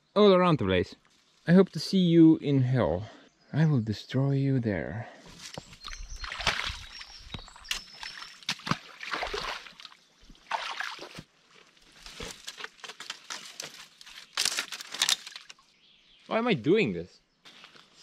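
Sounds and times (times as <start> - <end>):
branches and leaves rustling: 1.0 - 2.1, 5.2 - 16.5, 17.4 - 18.0
high bird chirps: 5.5 - 8.5.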